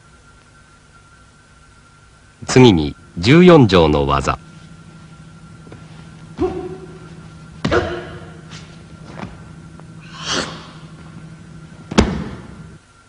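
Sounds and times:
steady low hum: 0:00.0 - 0:13.0
bodies thudding on mat: 0:06.4 - 0:09.4, 0:11.9 - 0:12.6.

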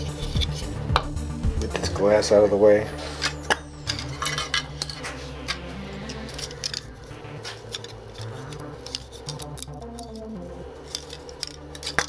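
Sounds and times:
glass and plastic parts clinking: 0:03.2 - 0:05.1, 0:10.9 - 0:12.0.

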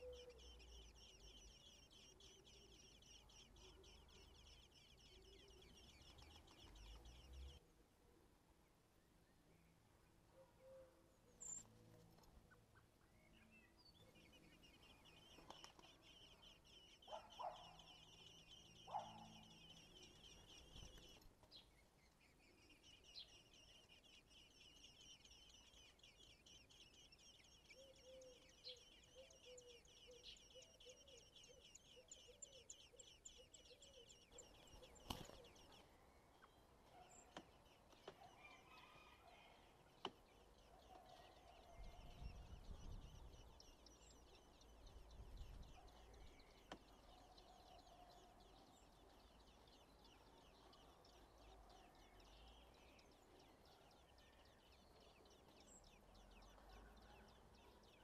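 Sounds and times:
nestlings chittering: 0:14.5 - 0:27.7, 0:39.7 - 0:51.6.

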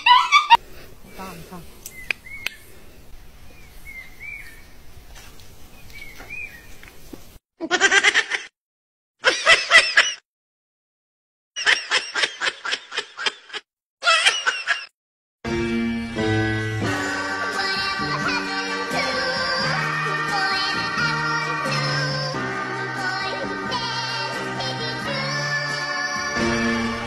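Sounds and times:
puppy whimpering: 0:00.0 - 0:00.6.

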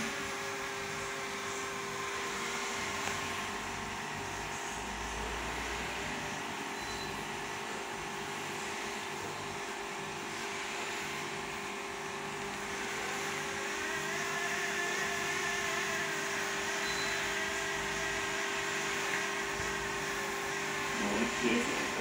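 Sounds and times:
high whine: 0:12.4 - 0:22.0.

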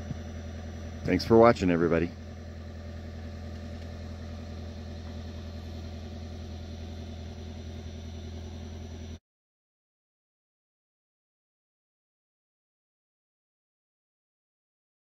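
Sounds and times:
car engine idling: 0:00.0 - 0:09.2.

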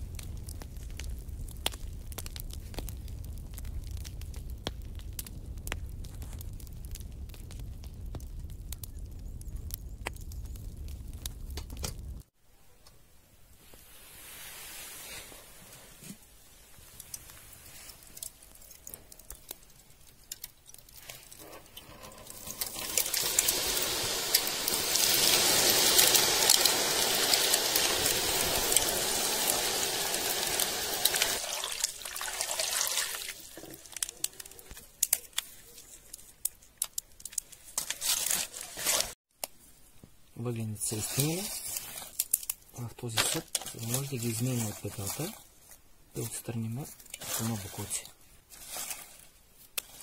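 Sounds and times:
clicks of wet charcoal handled: 0:16.9 - 0:23.5, 0:32.7 - 0:39.6, 0:41.0 - 0:50.0
water splashing into metal pot: 0:22.6 - 0:34.0.

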